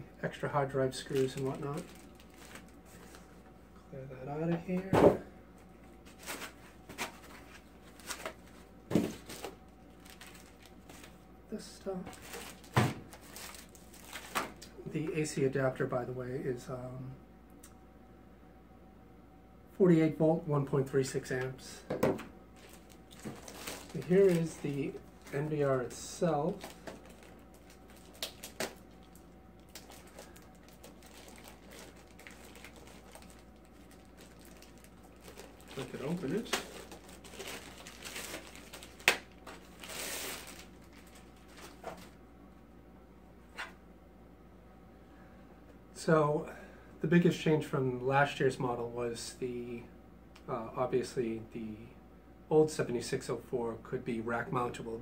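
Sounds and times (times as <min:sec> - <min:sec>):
plastic packaging rustling: 0:00.7 - 0:03.4, 0:06.0 - 0:11.2, 0:11.9 - 0:14.7, 0:22.1 - 0:42.2
plastic-wrapped device handling: 0:01.0 - 0:03.3, 0:06.0 - 0:11.2, 0:12.1 - 0:14.7, 0:22.6 - 0:42.2.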